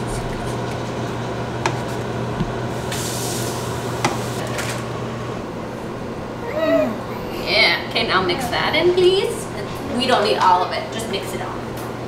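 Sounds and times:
sauce hissing in a pan: 0:02.7 - 0:04.4.

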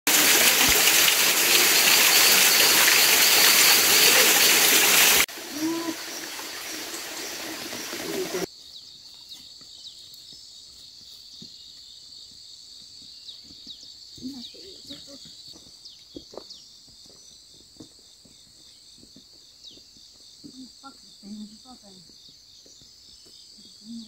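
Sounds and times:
waterfall rushing: 0:00.1 - 0:08.5.

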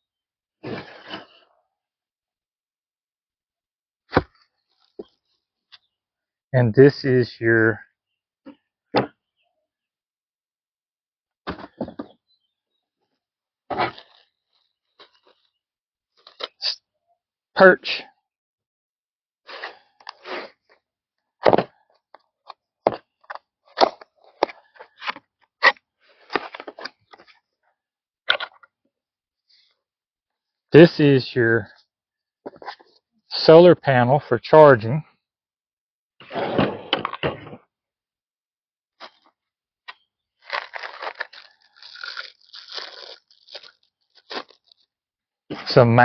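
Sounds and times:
plastic packaging crinkling: 0:40.4 - 0:44.8.

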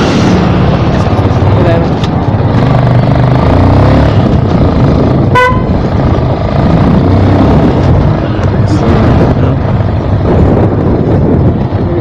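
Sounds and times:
motorcycle engine running: 0:00.0 - 0:12.0
horn beep: 0:05.3 - 0:05.8.

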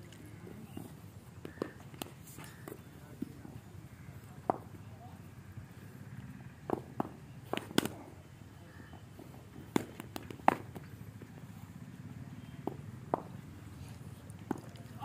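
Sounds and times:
balls landing: 0:06.6 - 0:08.0, 0:09.3 - 0:11.3, 0:14.4 - 0:15.0
cricket bat hitting ball: 0:06.6 - 0:08.0.

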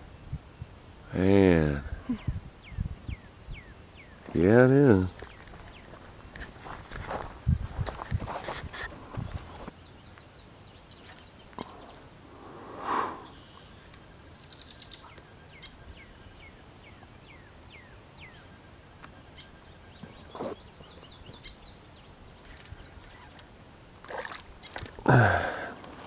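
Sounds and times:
faint outdoor ambience: 0:00.0 - 0:26.0
birds chirping: 0:01.1 - 0:07.0, 0:08.4 - 0:26.0
bird trill: 0:13.2 - 0:18.6, 0:19.2 - 0:23.4, 0:24.6 - 0:24.9.

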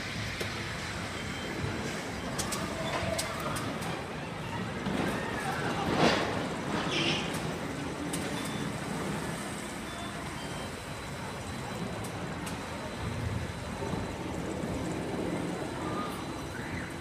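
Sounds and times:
amusement park din: 0:00.0 - 0:17.0.

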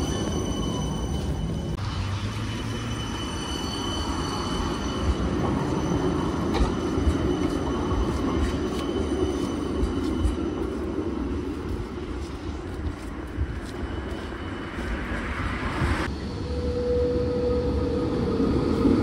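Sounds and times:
tram wheels rumbling on rails: 0:00.0 - 0:19.0
faint high whine: 0:16.1 - 0:18.9.

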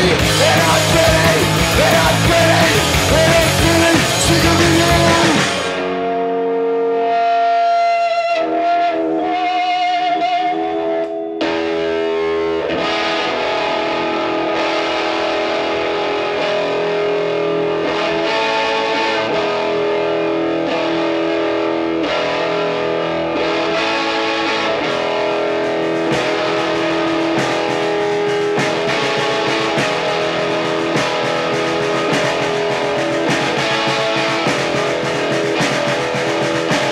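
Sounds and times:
distorted electric guitar: 0:00.0 - 0:36.9
live rock band playing: 0:00.0 - 0:36.9.

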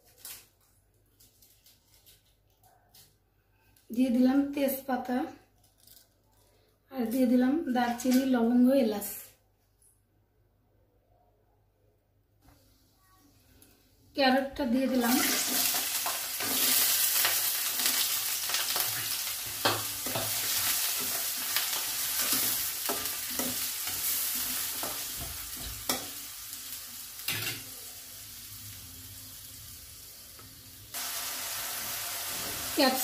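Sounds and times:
carrots sizzling in hot fat: 0:14.9 - 0:33.0.

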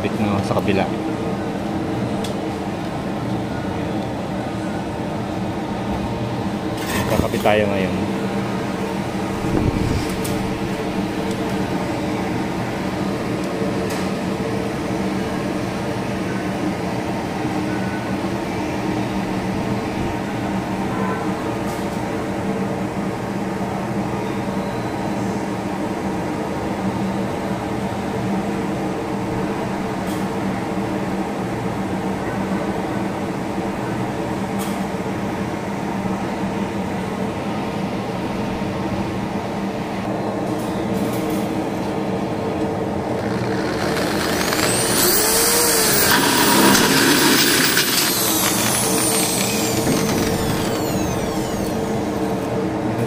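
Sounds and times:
steady machine hum: 0:41.8 - 0:53.0
electric drill boring into steel: 0:43.1 - 0:52.8.

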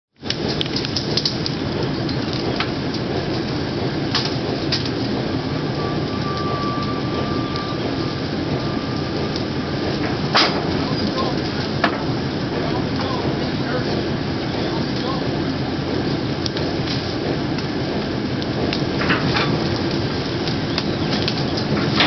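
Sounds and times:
rail car rumbling: 0:00.2 - 0:22.0
faint thin squeal: 0:05.6 - 0:09.3.

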